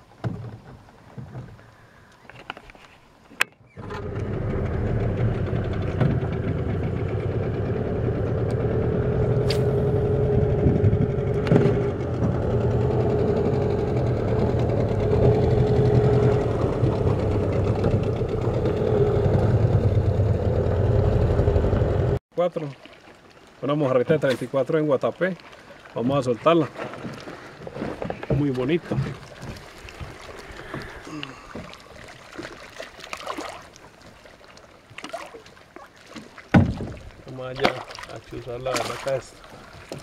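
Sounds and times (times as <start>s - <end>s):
outboard motor running: 3.8s - 22.2s, 26.9s - 34.2s.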